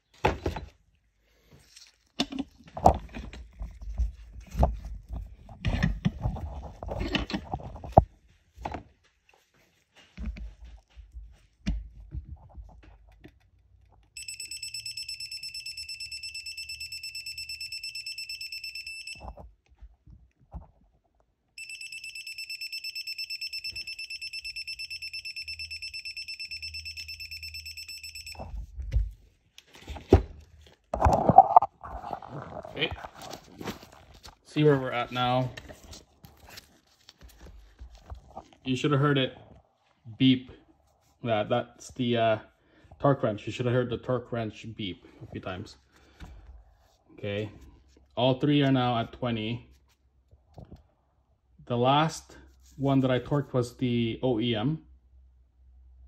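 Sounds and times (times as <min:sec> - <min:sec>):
torque wrench long high beeps: 0:14.2 - 0:19.2, 0:21.6 - 0:28.4.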